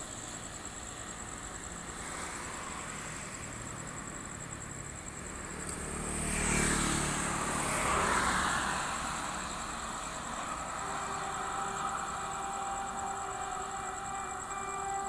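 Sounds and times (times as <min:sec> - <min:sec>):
rail machine diesel engine running: 0:09.1 - 0:15.0.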